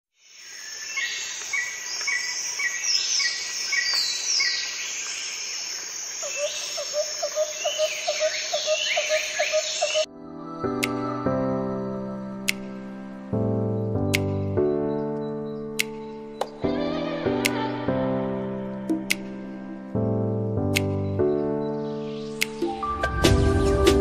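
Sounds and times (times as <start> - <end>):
birds chirping and whistling: 6.2 - 12.1.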